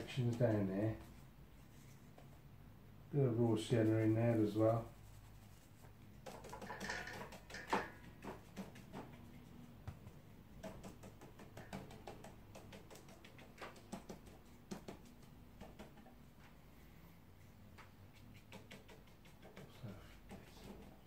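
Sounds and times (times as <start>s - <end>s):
brush brushing on paper: 0.0s - 2.4s, 3.6s - 6.6s, 17.4s - 21.0s
brush dabbing in metal tin: 3.6s - 9.6s.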